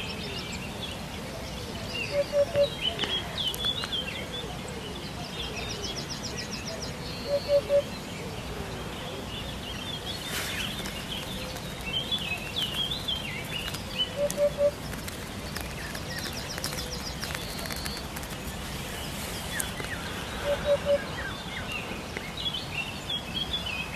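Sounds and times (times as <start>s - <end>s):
birds chirping and warbling: 0.0s - 23.9s
bird trill: 1.9s - 4.2s, 7.1s - 8.0s, 10.6s - 15.0s, 19.6s - 21.6s.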